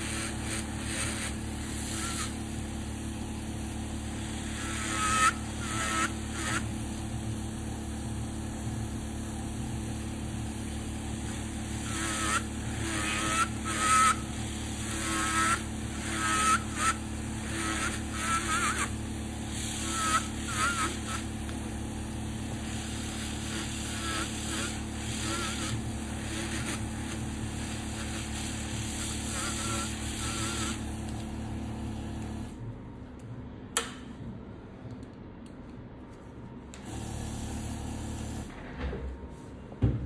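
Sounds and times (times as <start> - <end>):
electric nail drill whining: 0.0 - 3.0, 4.0 - 7.0, 11.1 - 32.5
sharp click: 33.8 - 34.1.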